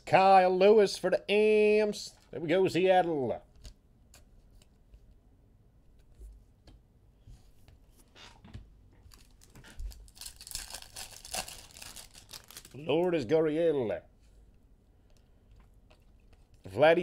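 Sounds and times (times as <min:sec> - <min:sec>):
foil wrapper tearing and crinkling: 0:09.1 - 0:12.9.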